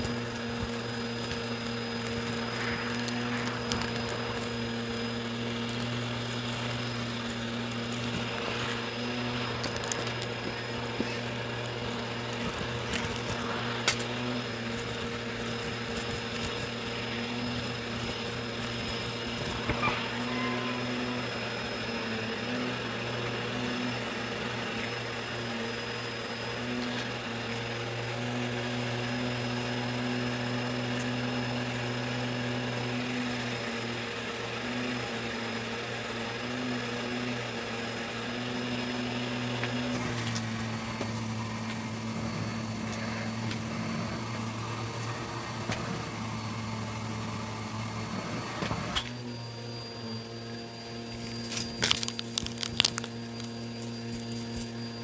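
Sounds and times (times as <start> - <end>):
hose sucking air: 0.0 - 28.2
vacuum cleaner motor whining: 0.0 - 55.0.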